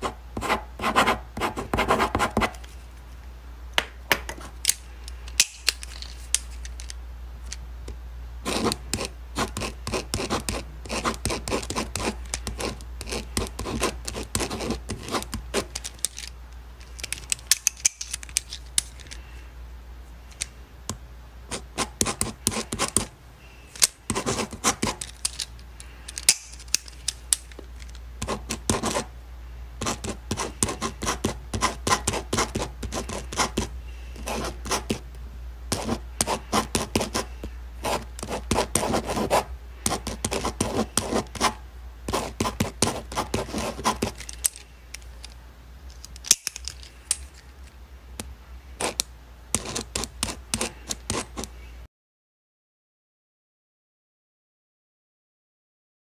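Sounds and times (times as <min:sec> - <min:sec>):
pen scratching on paper: 0:00.0 - 0:02.6, 0:08.4 - 0:15.7, 0:21.5 - 0:23.1, 0:24.1 - 0:25.0, 0:28.2 - 0:29.1, 0:29.8 - 0:35.0, 0:35.7 - 0:44.2, 0:48.8 - 0:49.0, 0:49.6 - 0:51.5.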